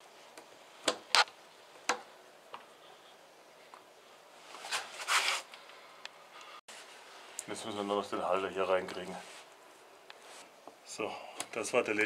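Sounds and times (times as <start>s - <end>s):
rustling scrape: 4.4s - 5.5s, 9.1s - 9.5s, 10.2s - 10.6s.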